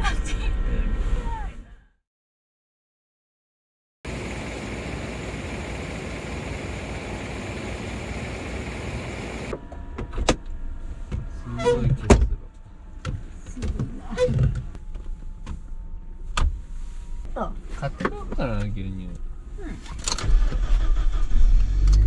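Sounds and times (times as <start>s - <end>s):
steady outdoor hiss: 4.1s - 9.6s.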